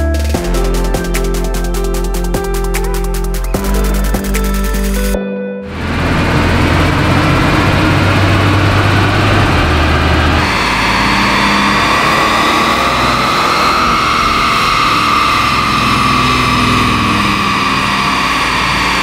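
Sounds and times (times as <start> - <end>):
car engine running hard: 5.7 - 19.0
wheels spinning rollers: 5.8 - 19.0.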